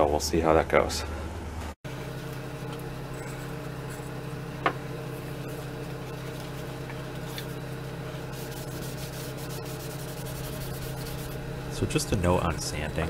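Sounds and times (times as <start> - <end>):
steady low hum: 0.0 - 13.0
cloth rubbing on wood: 8.2 - 11.4.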